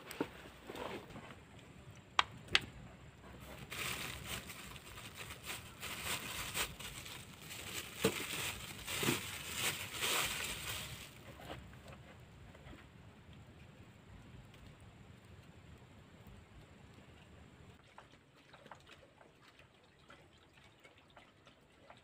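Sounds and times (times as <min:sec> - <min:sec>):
rustling and crinkling handling: 0:00.0 - 0:01.8, 0:03.2 - 0:13.0.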